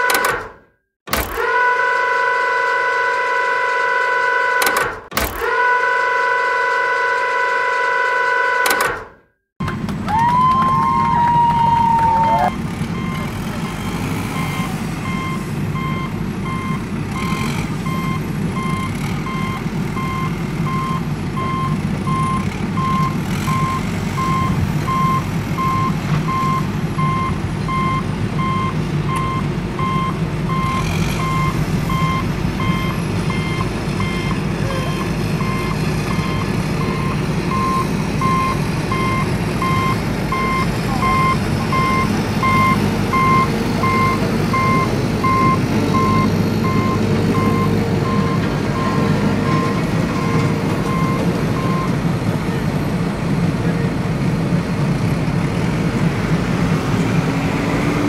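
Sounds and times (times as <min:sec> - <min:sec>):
reversing alarm beeping: 0:09.6 - 0:52.0
truck engine rumbling: 0:09.6 - 0:58.0.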